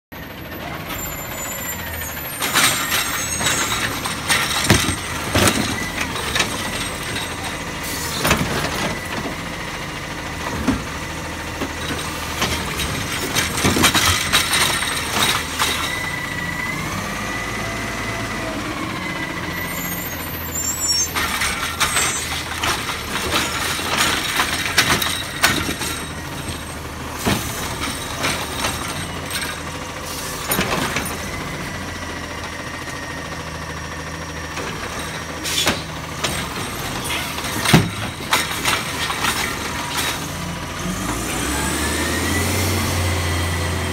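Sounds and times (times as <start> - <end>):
garbage truck engine running: 0.1 - 43.9
clanks and knocks of trash cart: 2.4 - 9.6, 10.3 - 16.4, 19.6 - 31.8, 34.5 - 41.6.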